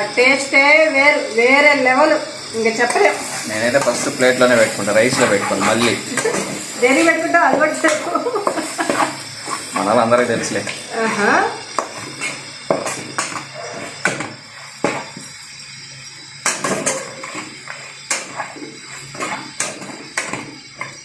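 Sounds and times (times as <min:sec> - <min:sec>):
metal spatula scraping a metal pan: 0:02.6 - 0:15.4, 0:16.4 - 0:21.0.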